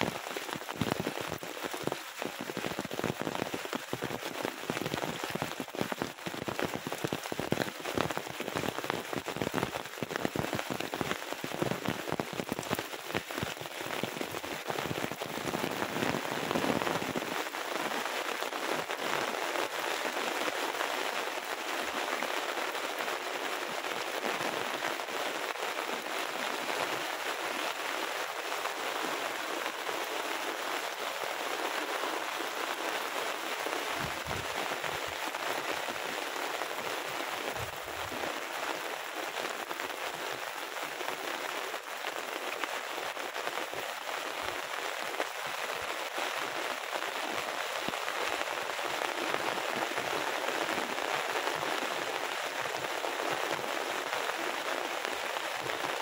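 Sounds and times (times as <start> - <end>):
heavy rain hissing: 0.0 - 56.0.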